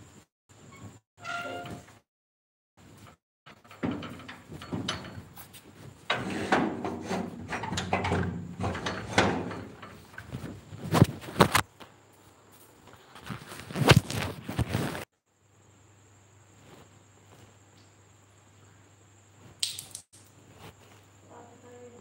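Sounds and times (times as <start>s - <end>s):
objects knocking and scraping: 2.9s - 11.7s.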